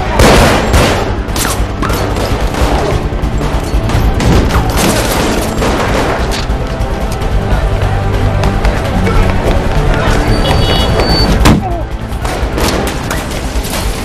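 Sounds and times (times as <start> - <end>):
gunshots and impacts: 0.0 - 6.5
loud film score: 0.0 - 14.0.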